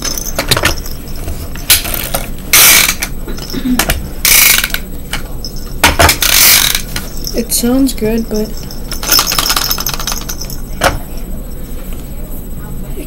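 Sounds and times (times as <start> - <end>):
toy truck wheels on wooden table: 6.1 - 7.1.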